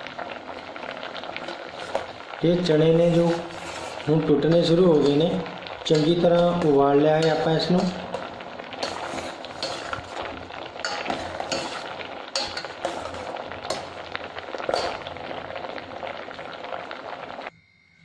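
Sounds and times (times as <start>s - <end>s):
boiling water bubbling: 0.0s - 17.5s
ladle scraping and knocking pot: 3.1s - 15.4s.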